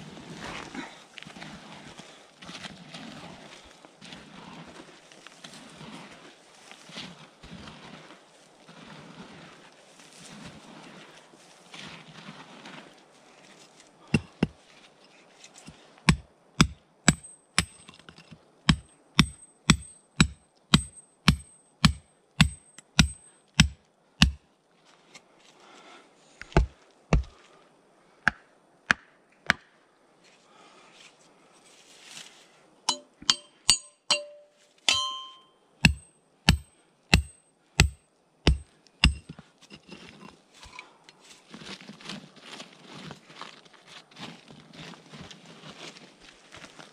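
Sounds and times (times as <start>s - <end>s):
digging tool striking ground: 14.2s - 14.6s, 16.1s - 24.4s, 26.4s - 27.4s, 32.9s - 39.9s
metallic clang: 32.9s - 35.6s.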